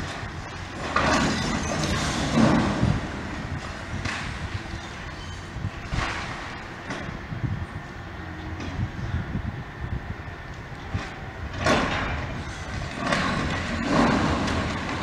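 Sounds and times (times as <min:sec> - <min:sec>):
concrete crunching and debris falling: 0:00.0 - 0:04.6, 0:11.6 - 0:15.0
excavator running: 0:00.0 - 0:15.0.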